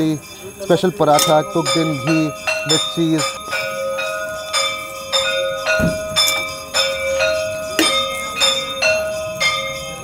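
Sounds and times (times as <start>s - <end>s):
bell ringing: 0.0s - 10.0s
dull knock: 5.8s - 6.2s.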